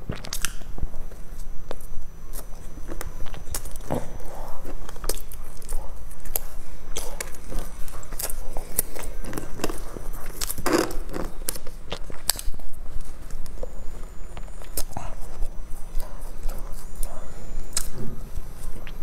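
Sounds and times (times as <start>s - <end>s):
chewing bread rolls: 0.0s - 19.0s
crust crackling: 0.0s - 19.0s
wet mouth clicks: 0.1s - 0.7s.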